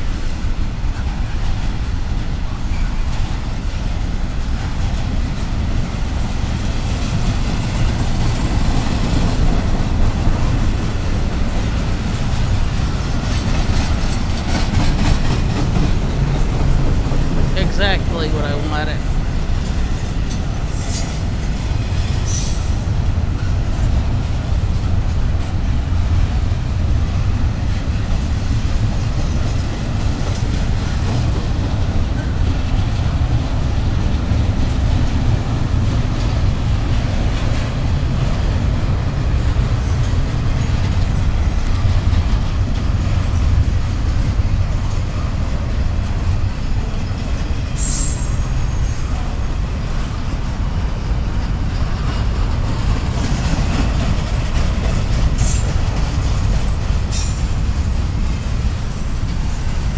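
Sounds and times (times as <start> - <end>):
train wheels rumbling on rail: 0.0 - 59.9
high wheel squeals: 47.0 - 49.1.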